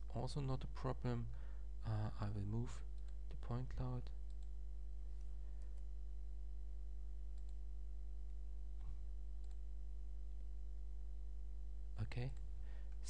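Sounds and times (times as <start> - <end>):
low electrical hum: 0.0 - 13.0
computer mouse clicks: 4.3 - 4.5, 7.4 - 7.6, 8.8 - 9.6.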